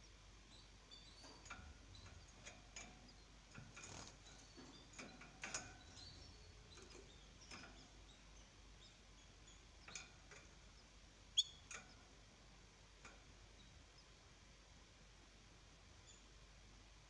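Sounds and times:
canaries chirping: 0.0 - 12.2.

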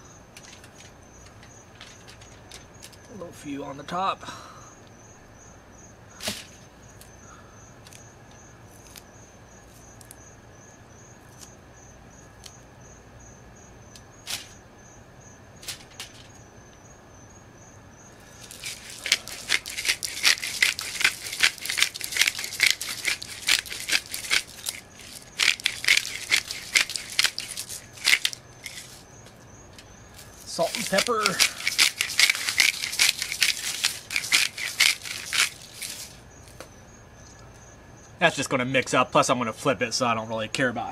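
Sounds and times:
pepper mill grinding: 18.3 - 29.0, 30.1 - 36.2.

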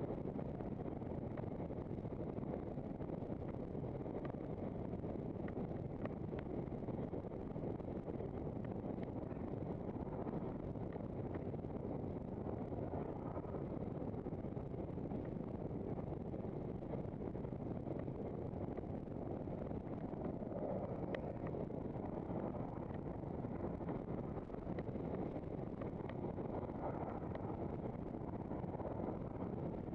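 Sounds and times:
wind rush on microphone: 0.0 - 29.9.

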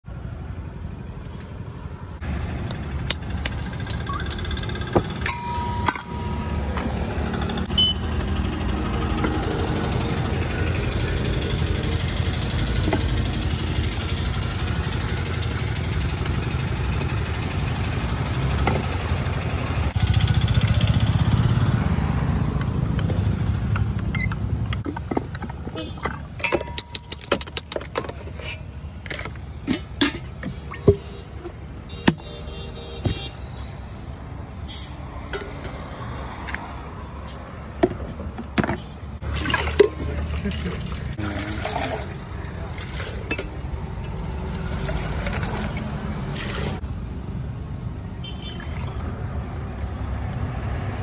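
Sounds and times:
sharp metallic clinks: 4.3 - 6.9
juice extractor motor humming: 39.2 - 43.2.

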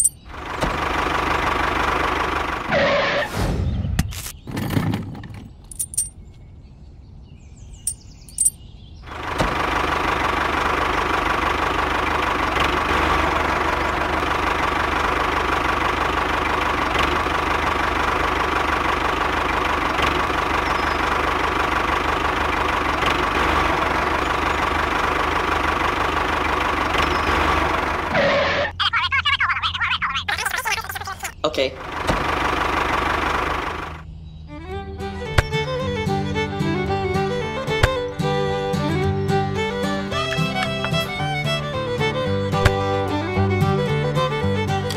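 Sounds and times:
model tractor engine running: 0.0 - 2.7, 9.1 - 28.6, 31.8 - 34.0.

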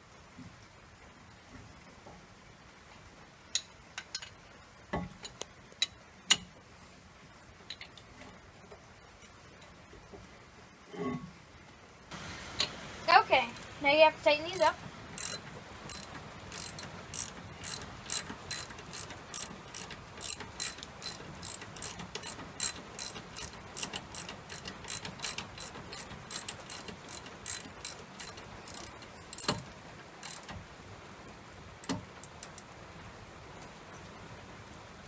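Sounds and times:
ratchet wrench clicking: 14.5 - 30.6.

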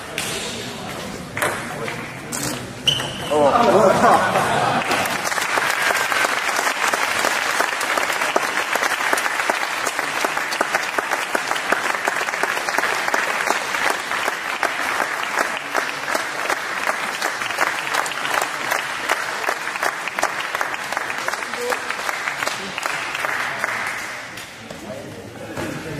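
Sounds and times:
crowd applauding: 3.8 - 24.4.

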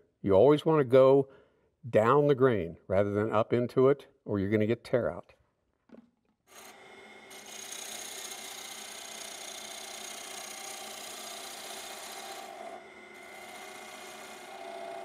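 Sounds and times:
lathe gouge shaving wood: 6.5 - 15.0.

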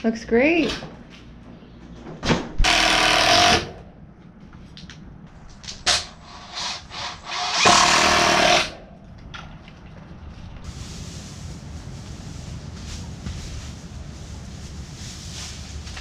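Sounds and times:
power drill driving screws: 2.6 - 3.7, 6.4 - 8.8.

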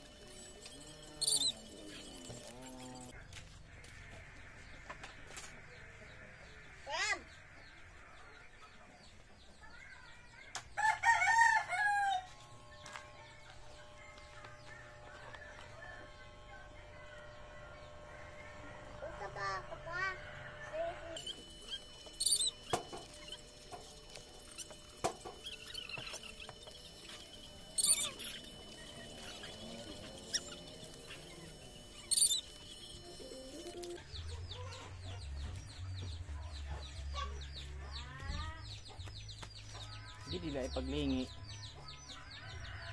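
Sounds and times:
hair clippers humming: 0.0 - 5.6, 10.5 - 35.8
rooster crowing: 10.8 - 12.4, 42.2 - 42.9.

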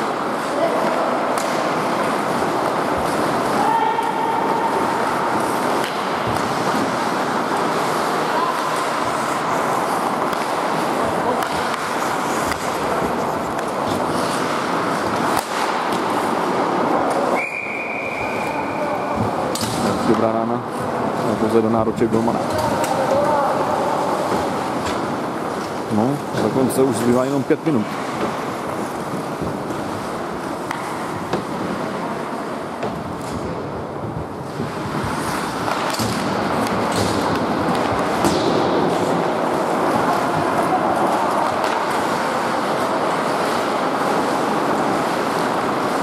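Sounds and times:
hockey sticks and puck clacking: 0.0 - 46.0
hum of indoor hall: 0.0 - 46.0
referee's whistle: 17.4 - 19.1.

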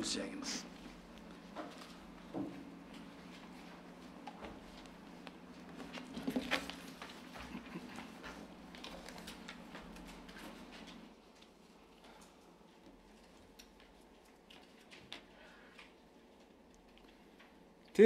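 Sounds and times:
papers rustling: 3.0 - 11.6.

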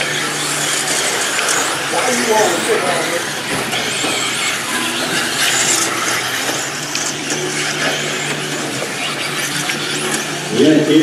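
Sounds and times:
rc car motors whining: 0.0 - 11.0.

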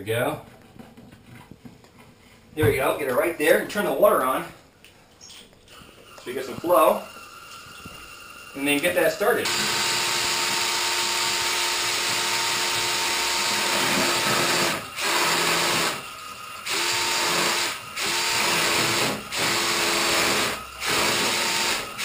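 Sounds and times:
cordless drill whining: 9.4 - 22.0.

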